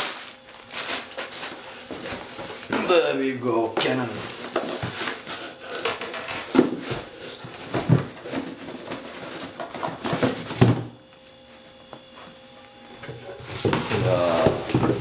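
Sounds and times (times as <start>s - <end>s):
box scraping in cardboard carton: 13.4s - 15.0s.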